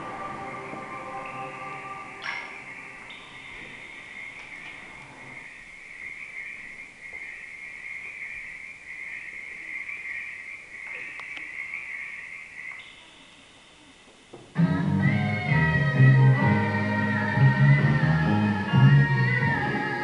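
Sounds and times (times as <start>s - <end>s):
chorus of frogs calling: 0.1s - 13.8s.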